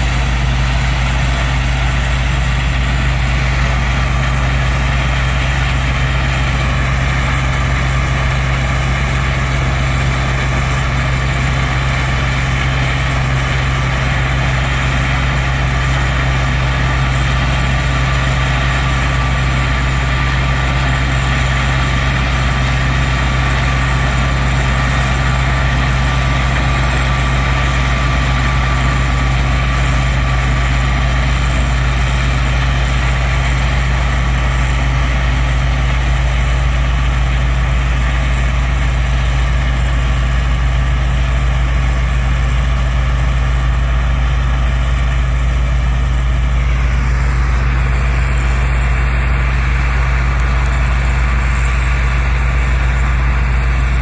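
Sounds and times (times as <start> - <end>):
heavy engine droning: 0.0 - 54.0.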